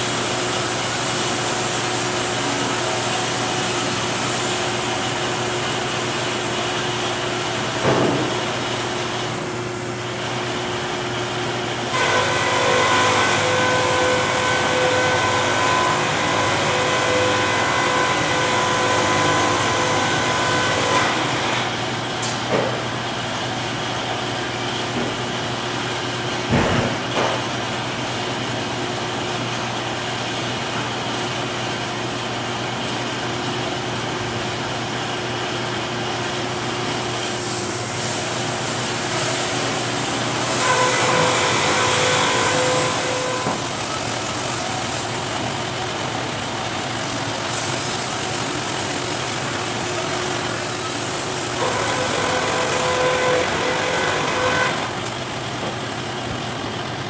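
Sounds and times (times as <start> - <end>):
sawmill machinery drone: 0.0 - 57.0
saw blade whine: 11.9 - 21.9, 36.7 - 57.0.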